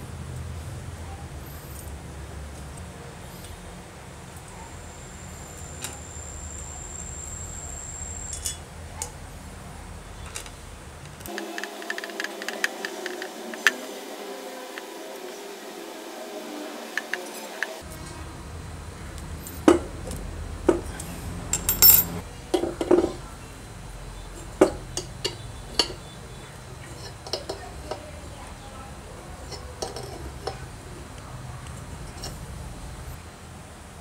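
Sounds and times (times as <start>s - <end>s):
hand tools clinking on metal: 21.6s - 23.2s, 24.6s - 26.1s, 29.5s - 30.6s.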